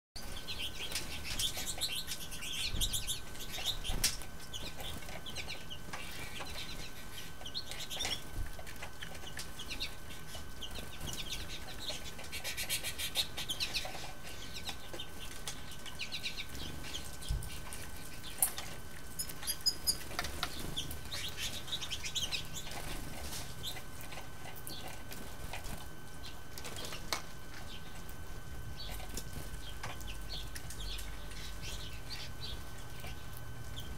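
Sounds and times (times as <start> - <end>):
goldfinches chirping: 0.2 - 8.3, 9.2 - 18.4, 19.2 - 22.8
wings fluttering: 0.2 - 33.9.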